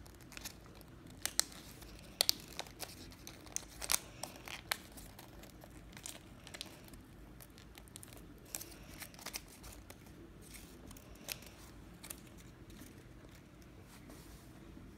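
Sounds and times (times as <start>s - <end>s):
paper rustling and crinkling: 0.0s - 14.5s.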